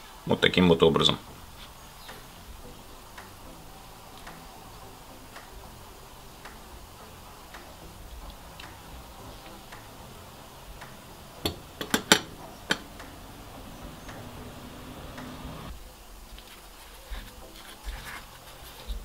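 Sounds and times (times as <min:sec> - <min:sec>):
faint regular ticking: 0:01.2 - 0:15.8
utensil knocking on glass bowl: 0:11.5 - 0:12.9.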